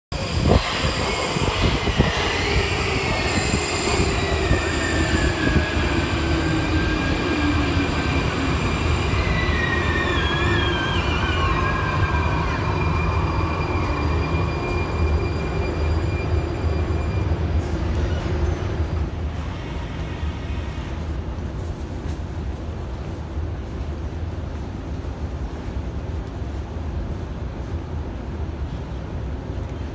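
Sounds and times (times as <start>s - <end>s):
train braking whine: 0.1s - 21.1s
low train rumble: 0.1s - 29.9s.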